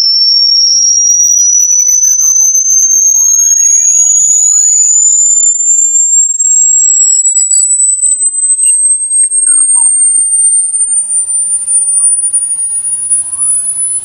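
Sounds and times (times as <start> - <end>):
high-pitched electronic whistle: 0.0 - 14.0
sweeping electronic chirps: 0.0 - 14.0.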